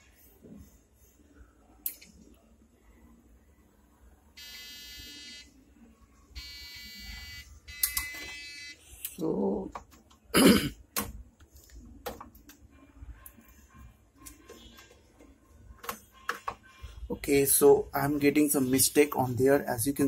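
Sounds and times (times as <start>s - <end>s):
long electronic beeps: 6.4s - 8.9s.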